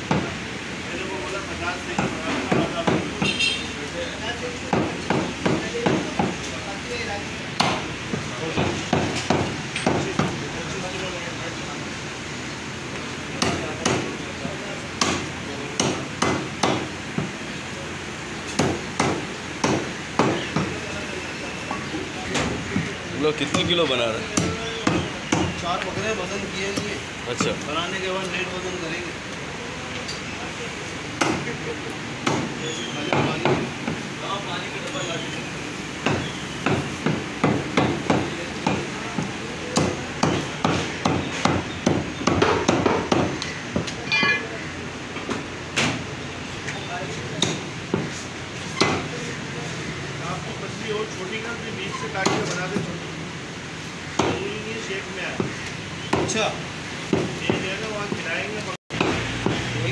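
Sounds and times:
cleaver chopping meat on wood: 0.0s - 0.4s, 2.0s - 3.3s, 4.7s - 6.4s, 7.6s - 10.4s, 13.4s - 14.2s, 15.0s - 17.4s, 18.6s - 20.8s, 22.4s - 25.6s, 31.2s - 31.5s, 32.2s - 34.0s, 36.0s - 44.0s, 52.2s - 52.6s, 54.1s - 54.4s, 55.4s - 56.4s, 57.1s - 58.3s, 58.9s - 59.7s.

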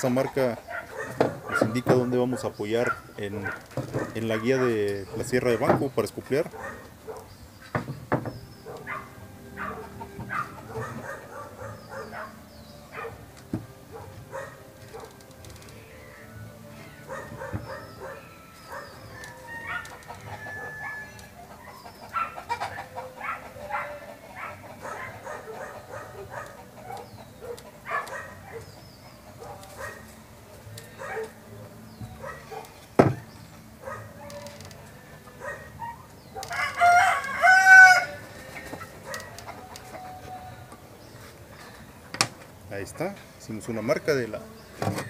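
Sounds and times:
chicken calls: 8.3s - 15.1s, 15.7s - 30.2s, 33.8s - 41.9s
rooster crowing: 16.8s - 21.4s, 36.4s - 38.2s.

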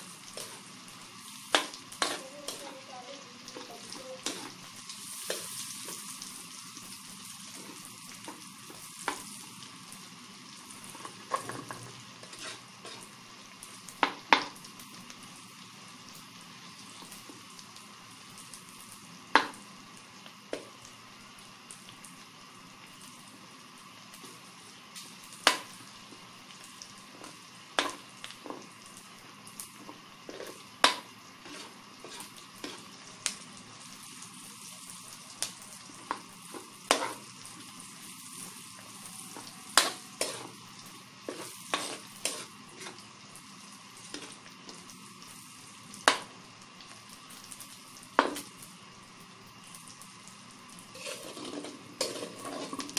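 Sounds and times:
meat and onion sizzling in wok: 0.0s - 52.9s
metal spatula scraping wok: 1.5s - 2.8s, 10.9s - 13.1s, 30.3s - 32.9s, 39.3s - 40.6s, 41.3s - 43.0s, 50.9s - 52.9s.

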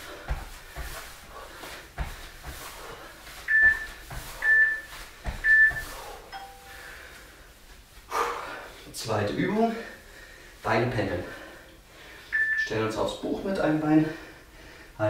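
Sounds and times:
feet thudding on floor mat: 0.0s - 6.3s
interval timer beeps: 3.5s - 6.8s, 12.3s - 12.7s
low tone: 5.7s - 6.9s.

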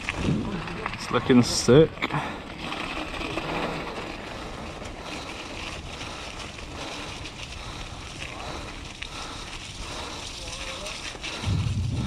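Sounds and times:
bike tyres rolling on gravel: 0.0s - 12.0s
small ticks and rattles: 2.6s - 12.0s
wind on microphone: 11.3s - 12.0s.

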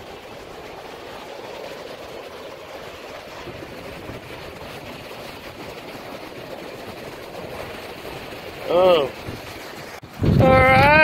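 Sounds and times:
surf breaking on beach: 3.2s - 11.0s
wind on microphone: 3.4s - 11.0s.

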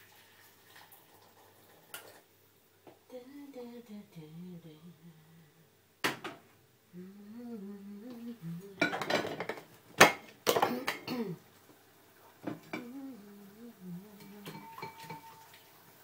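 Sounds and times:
person humming a low tune: 3.1s - 5.6s, 6.9s - 8.8s, 12.7s - 14.7s
dishes and cutlery clattering: 8.8s - 11.1s, 14.2s - 15.5s.

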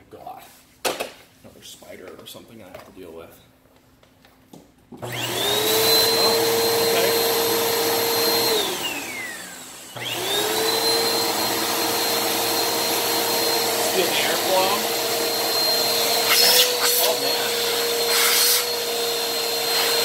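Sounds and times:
vacuum cleaner motor whining: 5.0s - 20.0s.

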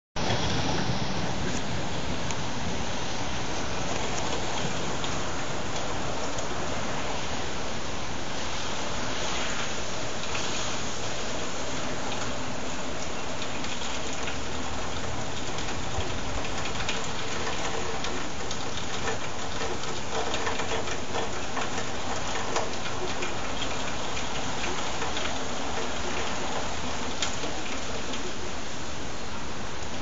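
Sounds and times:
heavy rain falling: 0.2s - 30.0s
raindrop taps: 3.8s - 7.2s, 11.7s - 28.5s.

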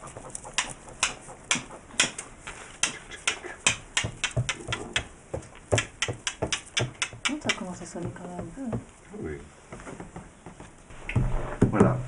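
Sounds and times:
small hard objects clicking: 2.8s - 7.8s.

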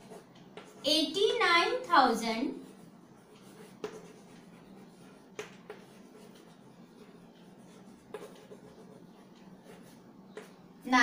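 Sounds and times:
chalk scratching on blackboard: 2.5s - 10.6s
chalk tapping on board: 3.3s - 10.6s.

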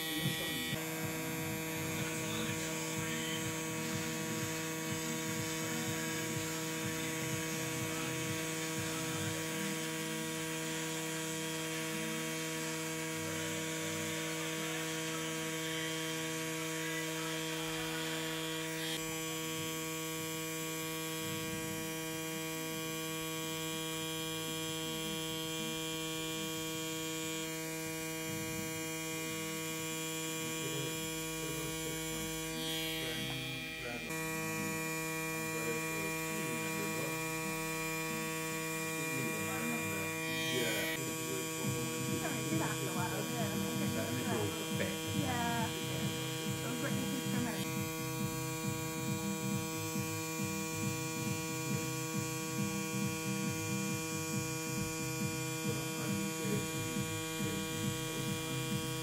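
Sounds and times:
tattoo machine buzzing: 0.0s - 59.0s.

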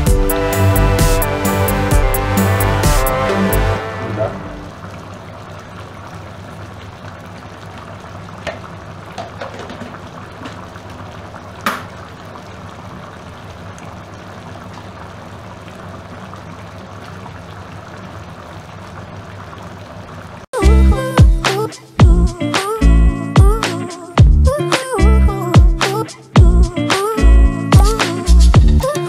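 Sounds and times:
gravy bubbling in a wok: 4.7s - 20.5s.

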